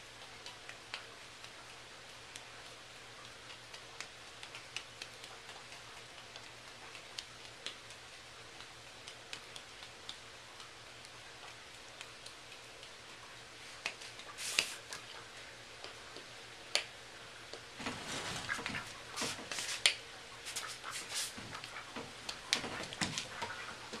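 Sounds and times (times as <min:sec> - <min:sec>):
duck feet slapping on hard floor: 0:13.7 - 0:16.9, 0:17.5 - 0:24.0.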